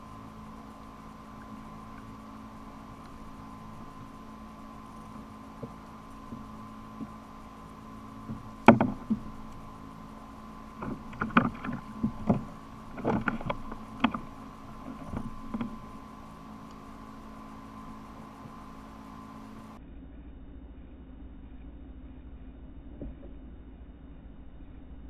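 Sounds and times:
faint steady hum: 0.0 - 25.0
knocks on plastic kayak hull: 8.3 - 9.3.

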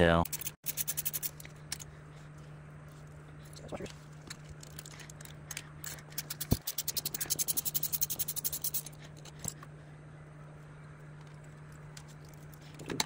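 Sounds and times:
rapid tool clicking: 0.3 - 1.5, 5.8 - 9.0.

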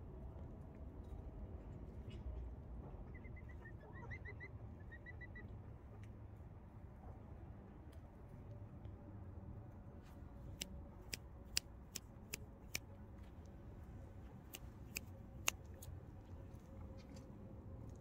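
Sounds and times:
chicken beak clicks: 10.6 - 12.9, 14.4 - 16.0.

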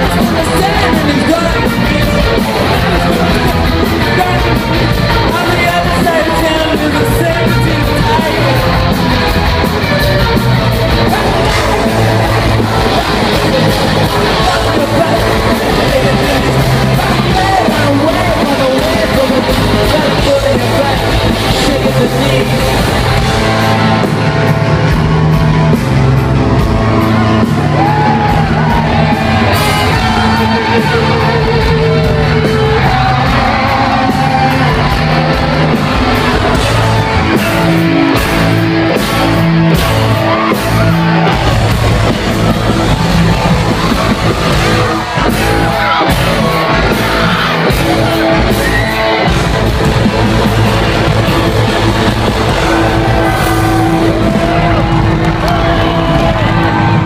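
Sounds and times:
singer's vocals: 0.0 - 9.2, 10.9 - 23.6
live rock band playing: 0.0 - 57.0.

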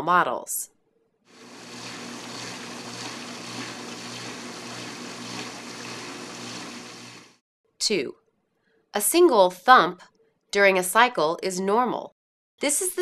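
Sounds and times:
dishwasher water sloshing: 1.4 - 7.4.

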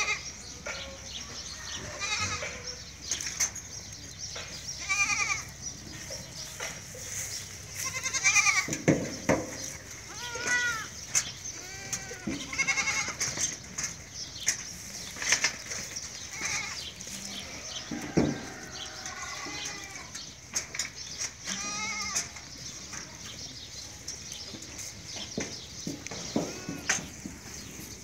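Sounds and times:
goats bleating: 1.8 - 2.7, 4.8 - 5.6, 7.7 - 8.8, 10.0 - 13.4, 18.4 - 20.2, 21.4 - 22.4, 26.2 - 27.1.

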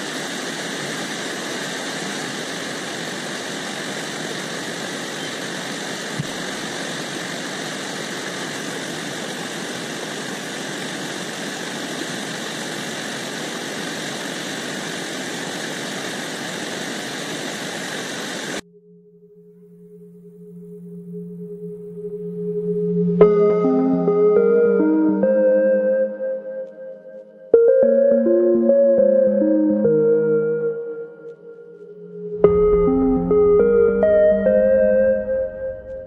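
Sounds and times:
stream rushing over boulders: 0.0 - 18.6.

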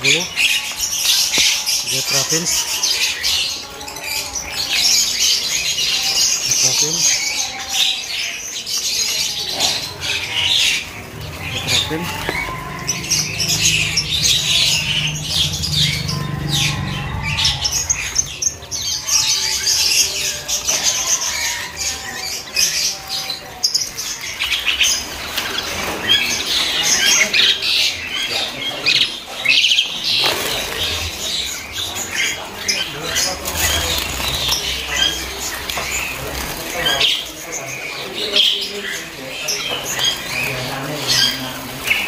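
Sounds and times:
finches chirping: 0.0 - 42.0
wings fluttering: 30.0 - 31.6, 32.9 - 37.5.

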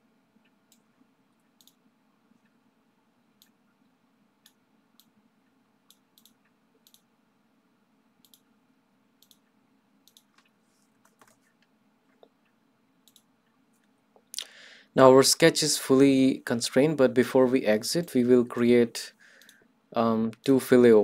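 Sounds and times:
low room hum: 0.0 - 21.0
computer mouse clicks: 0.7 - 1.8, 5.9 - 7.1, 8.2 - 8.5, 9.2 - 14.3, 19.4 - 19.7.

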